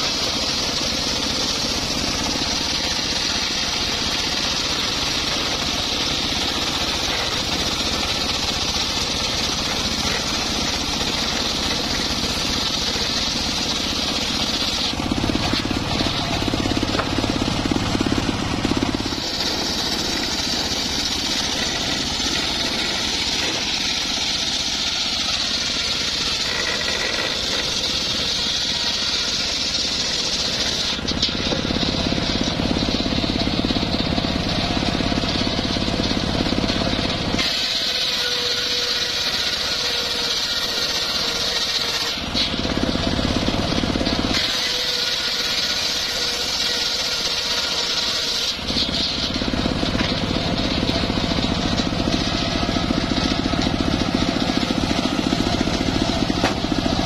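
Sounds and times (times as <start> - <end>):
circular saw ripping timber: 0.0 - 57.0
sawmill drive running: 0.0 - 57.0.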